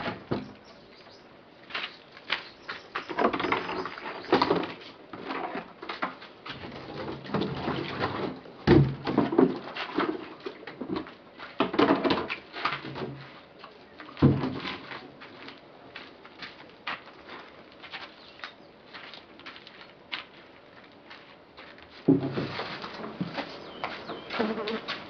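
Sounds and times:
flip-flop footsteps: 0:12.3 - 0:25.0
plastic containers knocking: 0:22.1 - 0:24.8.

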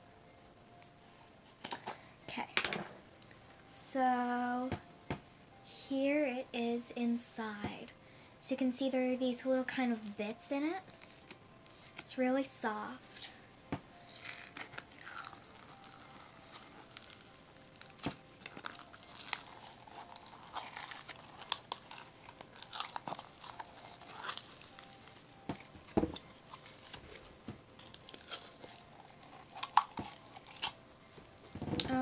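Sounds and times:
crunchy slime crackling: 0:10.0 - 0:12.1, 0:14.0 - 0:32.0.

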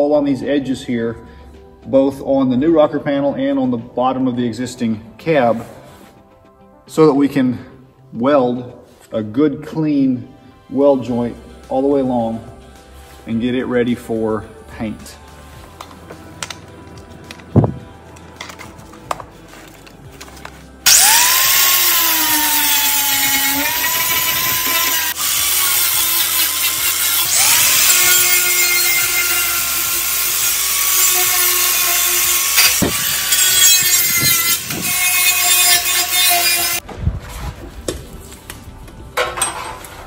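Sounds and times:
angle grinder sanding metal: 0:20.8 - 0:36.8.

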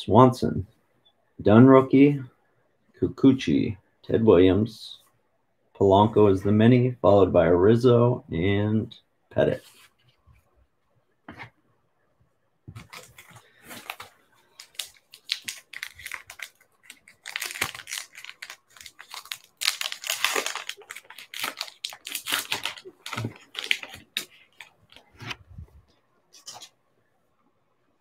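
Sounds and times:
wrapper tearing and crinkling: 0:12.8 - 0:25.1
cards ticking: 0:12.9 - 0:25.1.

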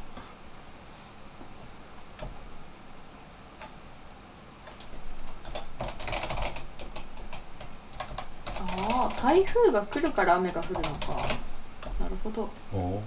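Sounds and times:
rapid keyboard typing: 0:04.7 - 0:12.0
scattered clicks: 0:04.7 - 0:12.0.

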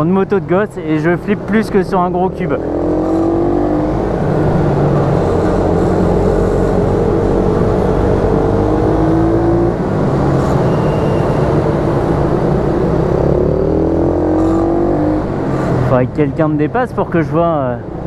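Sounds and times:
motorcycle engine revving: 0:02.0 - 0:16.0.

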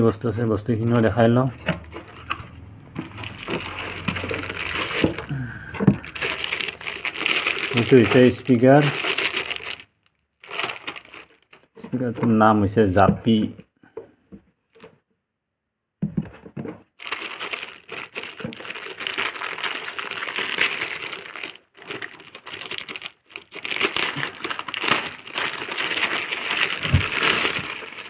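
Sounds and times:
plastic wrapping crinkling: 0:01.9 - 0:12.3, 0:16.9 - 0:28.0.

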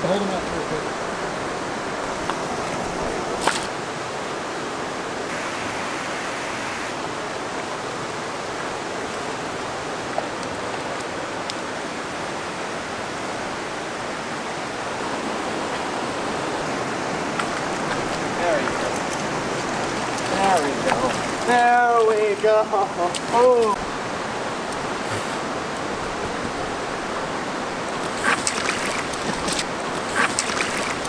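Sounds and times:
stream rushing over rapids: 0:00.0 - 0:31.0.

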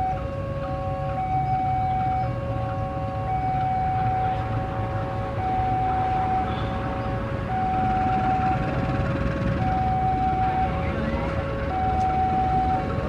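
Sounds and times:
diesel locomotive idling: 0:00.0 - 0:13.0
two-tone siren: 0:00.0 - 0:13.0.

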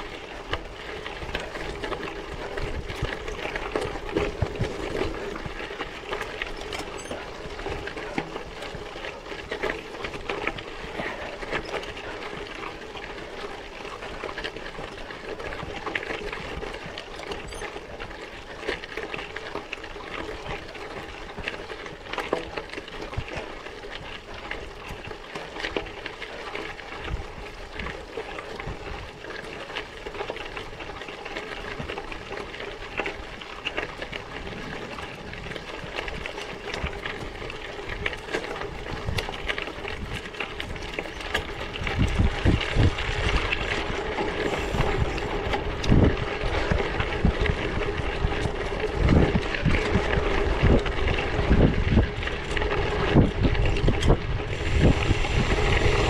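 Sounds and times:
bicycle tyre and frame rattle: 0:00.0 - 0:56.0
wind buffeting on microphone: 0:34.1 - 0:56.0.

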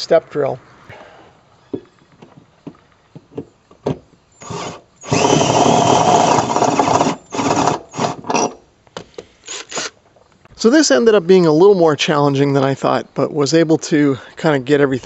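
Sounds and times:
power drill with high motor whine: 0:04.4 - 0:08.6, 0:09.5 - 0:09.9.

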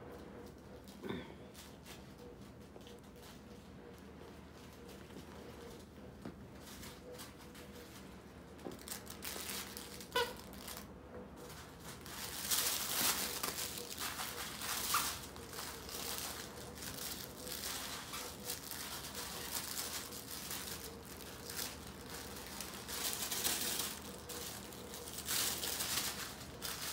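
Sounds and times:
rustling and crinkling of toys: 0:00.1 - 0:26.9
squeak: 0:10.1 - 0:10.6.

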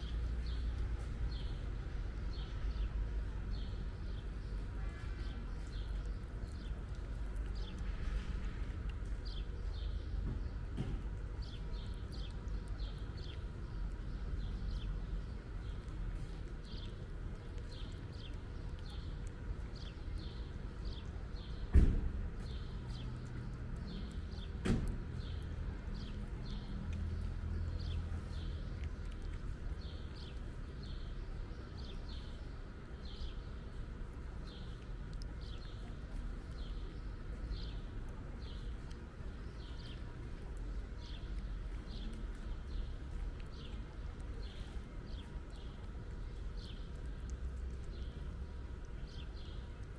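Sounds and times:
cat chewing wet food: 0:00.0 - 0:49.9
sharp knock: 0:21.7 - 0:22.2.

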